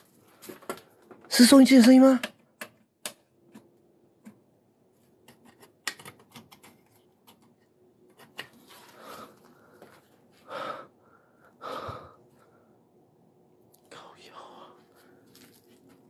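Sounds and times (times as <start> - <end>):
small clicks and knocks: 2.1 - 4.4, 5.2 - 8.6
breaths or whispers: 13.8 - 15.3.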